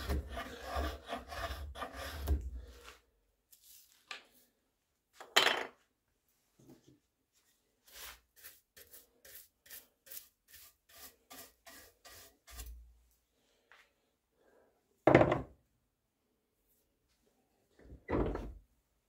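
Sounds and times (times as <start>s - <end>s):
brush sweeping wood shavings: 7.8s - 12.8s.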